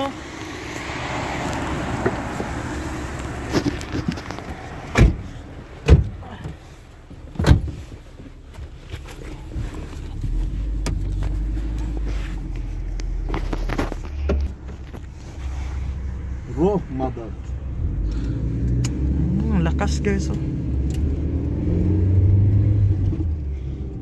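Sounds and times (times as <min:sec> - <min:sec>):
car cabin rumble: 0:01.9 - 0:18.4.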